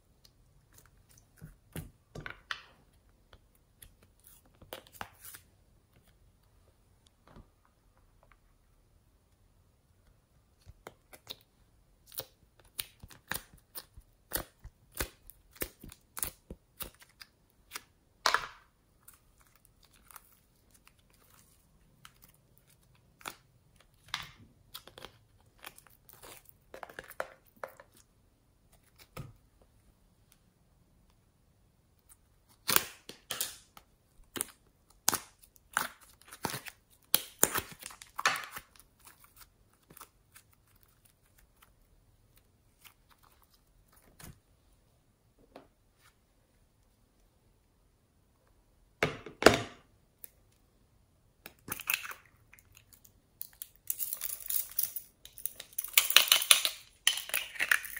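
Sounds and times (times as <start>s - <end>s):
slime popping and crackling: 32.6s - 39.4s, 55.3s - 57.9s.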